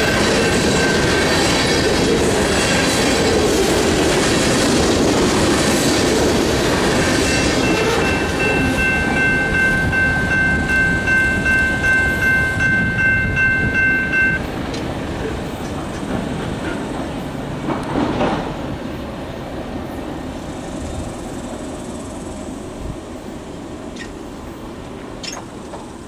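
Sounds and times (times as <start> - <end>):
crossing bell ringing: 0.0 - 1.8, 6.9 - 14.6
train wheels clacking on rails: 0.0 - 18.9.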